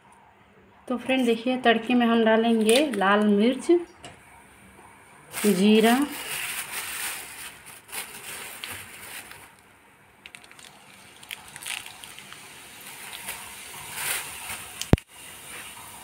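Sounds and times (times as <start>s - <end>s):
hot oil crackling with spices: 10.2s - 16.0s.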